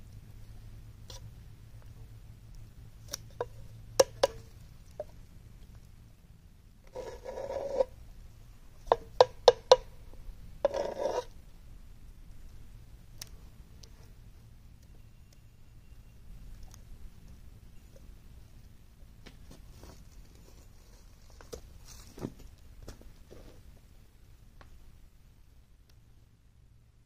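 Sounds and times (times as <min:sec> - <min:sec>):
hand tool scraping clay in tray: 0:06.9 - 0:07.9, 0:10.6 - 0:11.3.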